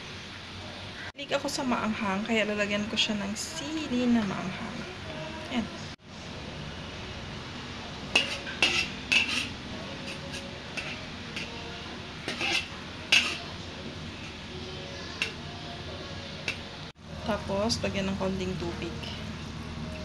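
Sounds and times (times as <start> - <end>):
metal spatula scraping a wok: 8.1 - 14.5.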